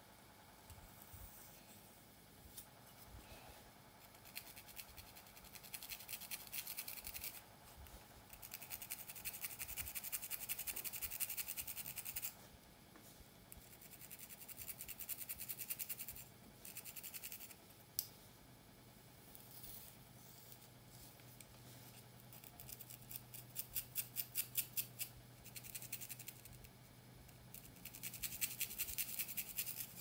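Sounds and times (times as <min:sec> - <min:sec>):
pick scratching through hair: 0:04.0 - 0:07.4, 0:08.3 - 0:12.4, 0:19.2 - 0:26.6, 0:27.5 - 0:30.0.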